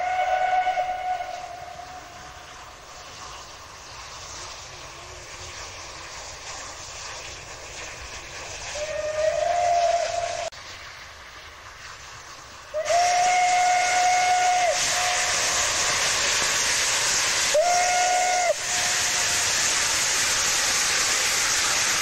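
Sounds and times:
steam locomotive whistle: 0.0s - 2.6s, 8.7s - 10.5s, 12.7s - 16.2s, 17.5s - 19.8s
steam hiss and engine exhaust: 0.0s - 22.0s.

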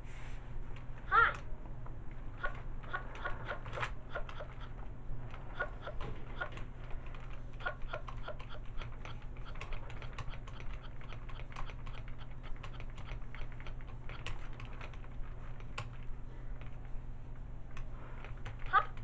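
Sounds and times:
toy mechanism clicking: 2.4s - 16.0s.

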